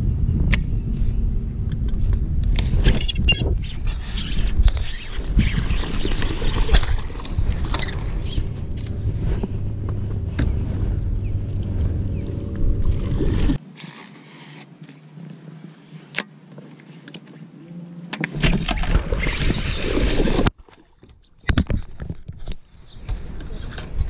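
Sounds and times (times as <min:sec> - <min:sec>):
low fluctuating rumble: 0:00.0 - 0:13.6
water lapping: 0:04.9 - 0:14.6.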